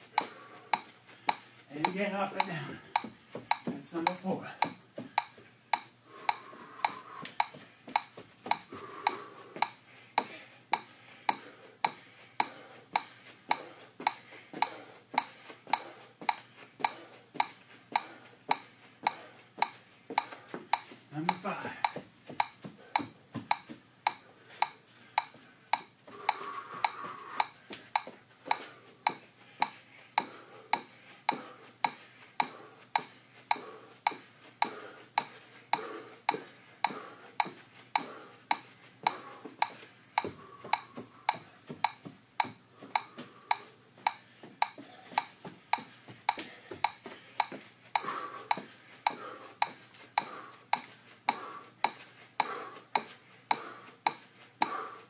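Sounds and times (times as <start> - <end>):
metronome clicking: 1.8 - 9.8.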